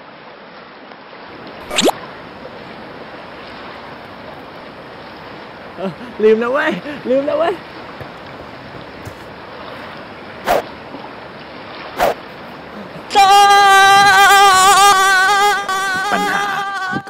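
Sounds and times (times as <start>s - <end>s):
surf: 1.3s - 17.0s
man wailing: 12.7s - 17.0s.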